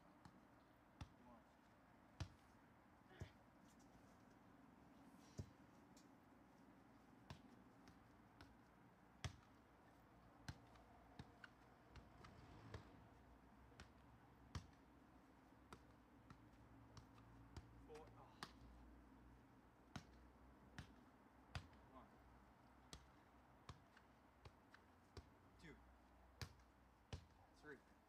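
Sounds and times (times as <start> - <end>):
soccer ball taps: 2.2 - 2.5, 7.2 - 12.9, 13.7 - 14.9, 15.6 - 18.7, 19.9 - 21.8, 22.8 - 25.3, 26.4 - 27.4.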